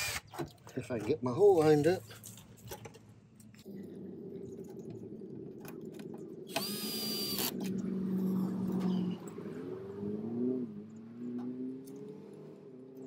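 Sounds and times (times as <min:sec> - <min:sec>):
cordless drill driving a screw: 0:00.0 - 0:00.4, 0:06.5 - 0:07.6.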